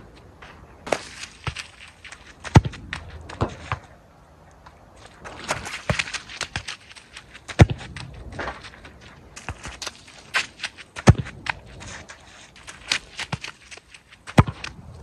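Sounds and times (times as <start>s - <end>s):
footsteps splashing on wet pitch: 0.8s - 15.0s
football kicked hard: 2.4s - 3.9s, 7.6s - 8.6s, 11.0s - 11.5s, 14.3s - 14.8s.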